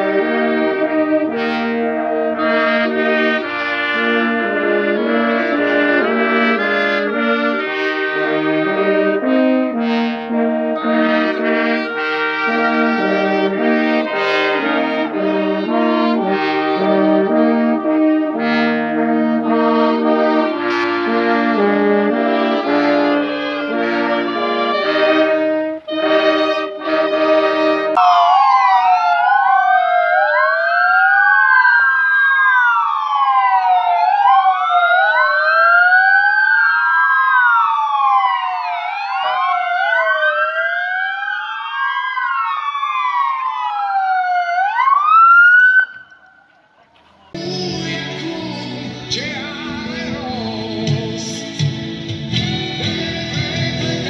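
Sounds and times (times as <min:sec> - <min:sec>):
brass band playing slow chords: 0:00.0 - 0:28.0, 0:47.4 - 0:54.0
ambulance sirens wailing: 0:00.0 - 0:54.0.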